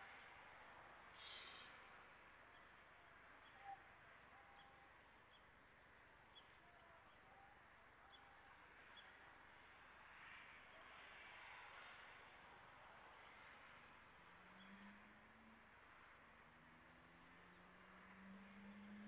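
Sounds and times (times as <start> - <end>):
faint steady hiss: 0.0 - 19.0
faint short chirps: 1.2 - 1.8.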